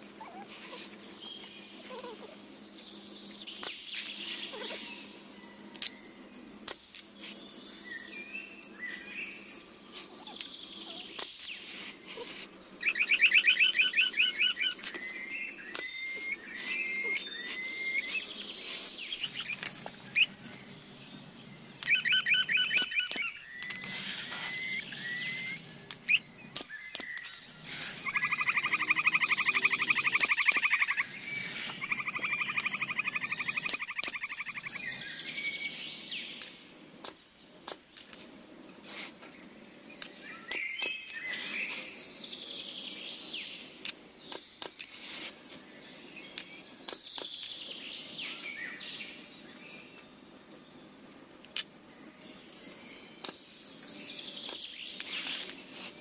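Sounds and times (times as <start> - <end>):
birds chirping: 0.0 - 56.0
bird trills: 6.9 - 20.8, 21.4 - 36.0.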